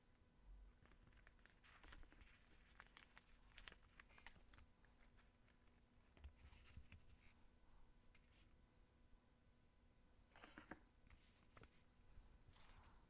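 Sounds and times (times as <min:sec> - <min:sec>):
paper rustling and tapping: 0:00.8 - 0:05.6.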